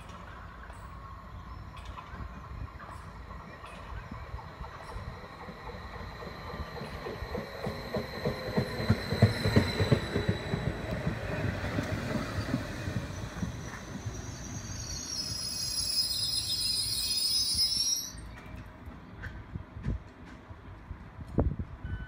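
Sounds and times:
train wheels clattering over joints: 0:03.7 - 0:13.9.

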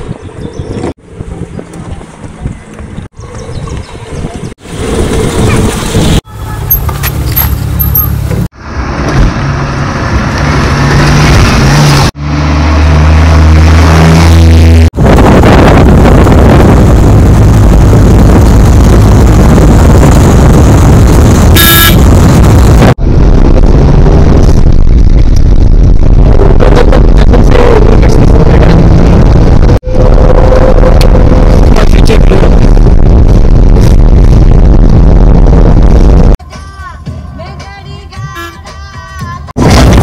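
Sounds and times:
engine and road noise in cabin: 0:04.8 - 0:36.4
short high beep: 0:21.6 - 0:22.0.

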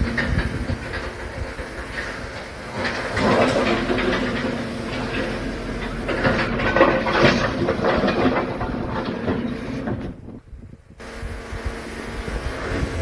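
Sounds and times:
rocks clattering into truck bed: 0:00.0 - 0:10.4
excavator engine hum: 0:00.0 - 0:13.0.

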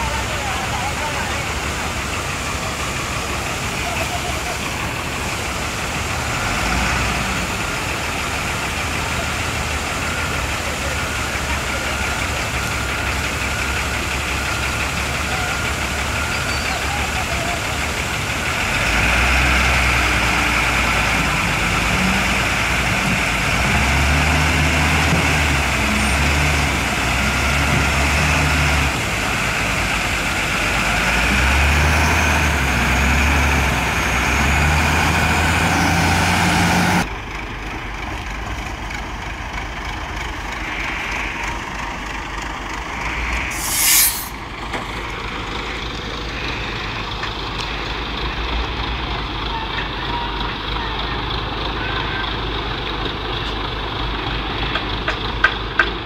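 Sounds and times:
heavy diesel engine running: 0:00.0 - 0:56.0
truck engine running: 0:00.0 - 0:56.0
air hiss: 0:43.5 - 0:44.4.

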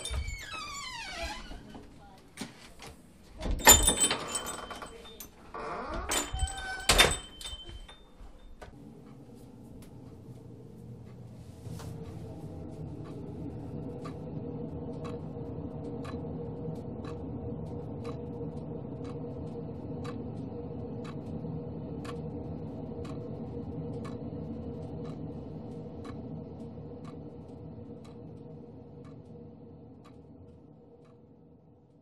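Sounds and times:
low hum: 0:00.0 - 0:02.2, 0:03.4 - 0:32.0
clock ticking: 0:11.9 - 0:32.0.

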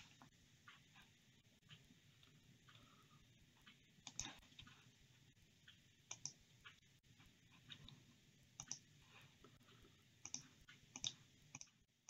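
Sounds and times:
computer mouse clicks: 0:03.6 - 0:04.9, 0:05.7 - 0:06.8, 0:08.6 - 0:08.9, 0:10.2 - 0:11.8.

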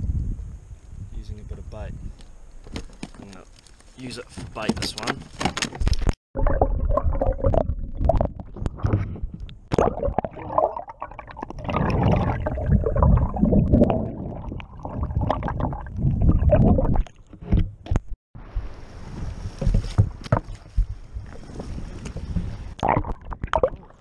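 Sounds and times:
underwater gurgling and sloshing: 0:06.4 - 0:24.0.

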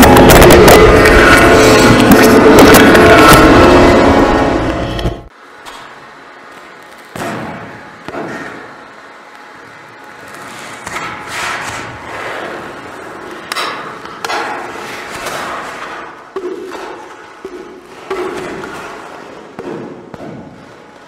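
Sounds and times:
rushing noise: 0:00.0 - 0:05.3.

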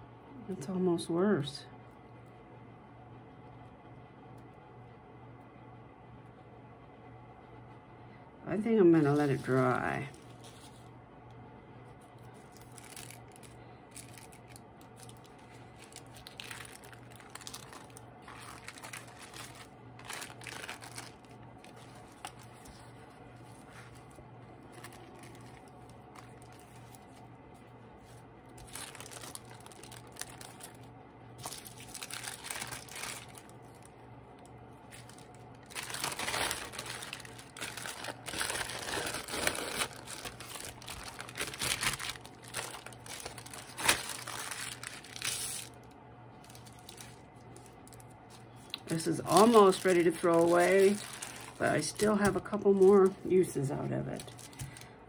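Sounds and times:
tissue paper rustling and crinkling: 0:09.1 - 0:10.9, 0:12.2 - 0:27.3, 0:28.0 - 0:33.9, 0:34.8 - 0:45.8, 0:46.4 - 0:53.2, 0:54.1 - 0:54.9.

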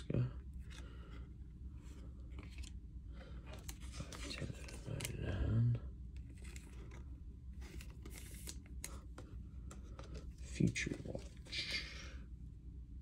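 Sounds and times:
cards and wrapper rustling: 0:03.5 - 0:05.2, 0:06.2 - 0:12.0.

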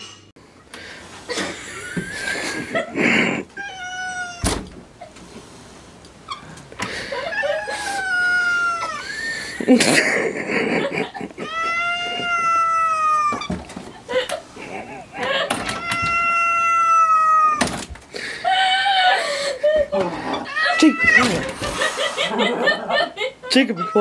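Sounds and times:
cat yowling: 0:03.6 - 0:04.5, 0:07.2 - 0:09.2, 0:11.4 - 0:13.5, 0:15.6 - 0:17.7, 0:20.4 - 0:21.5.

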